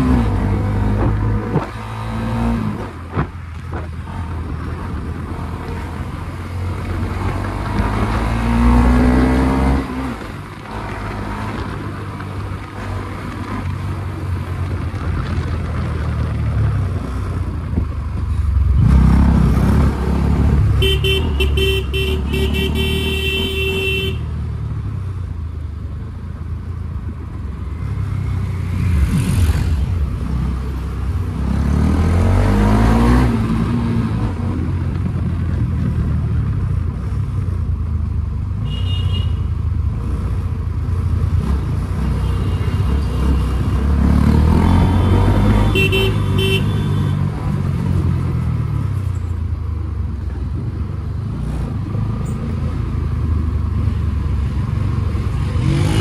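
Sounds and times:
vehicle horn stuttering: 0:20.8 - 0:24.3, 0:45.0 - 0:47.1
motorcycle engines revving: 0:39.8 - 0:56.0.

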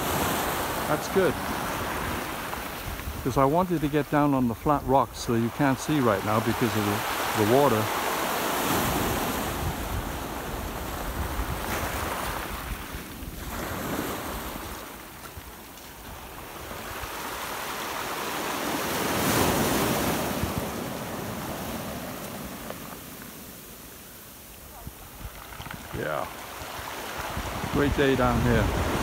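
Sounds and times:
wind rumbling on microphone: 0:00.0 - 0:05.8, 0:08.6 - 0:17.6, 0:24.6 - 0:29.0
waves on pebble beach: 0:00.0 - 0:29.0.

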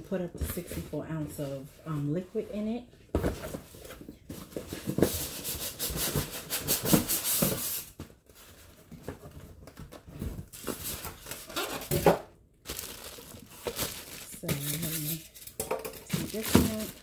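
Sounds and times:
plastic bag crinkling: 0:10.6 - 0:17.0.

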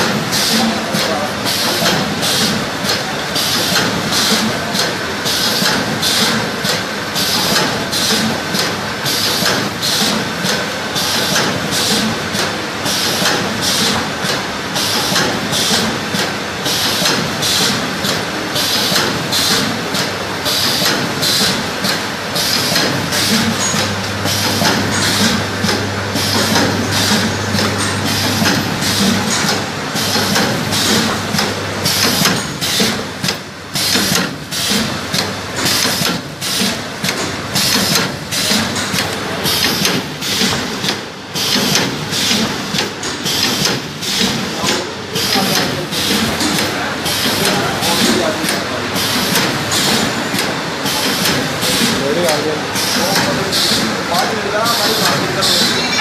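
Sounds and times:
cutting machine clatter: 0:00.0 - 0:56.0
steady low hum: 0:21.0 - 0:35.6.

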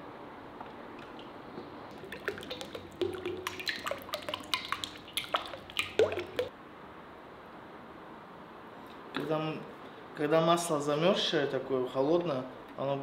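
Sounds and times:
oil glugging into metal pot: 0:01.0 - 0:06.5.

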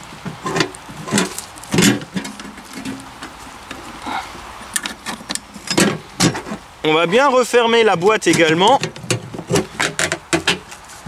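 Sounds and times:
metal can lid clacking and scraping: 0:00.2 - 0:03.9, 0:08.3 - 0:10.8.

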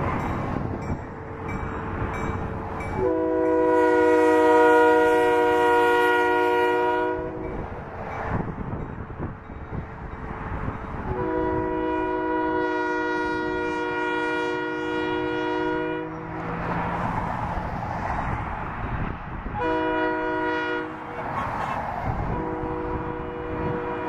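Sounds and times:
oncoming train rumble: 0:00.0 - 0:24.0
locomotive air horn: 0:02.9 - 0:07.6, 0:11.1 - 0:16.4, 0:19.5 - 0:21.4, 0:22.1 - 0:24.0.

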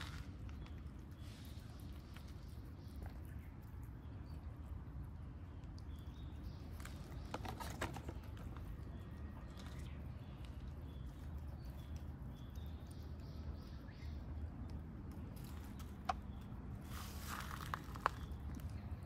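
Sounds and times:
steady low hum: 0:00.0 - 0:07.3
cats chewing and licking: 0:00.0 - 0:19.0.

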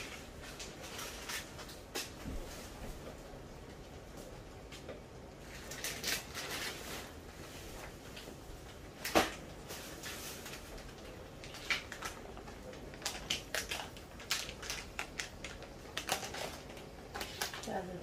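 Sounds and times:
oil crackling and popping: 0:05.5 - 0:06.8, 0:09.0 - 0:17.8.

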